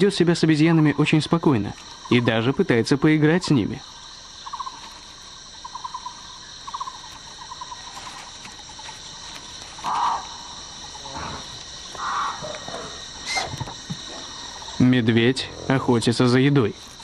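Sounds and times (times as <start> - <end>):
high-pitched insect chorus: 0.0 - 17.0
short loud calls: 11.0 - 14.3.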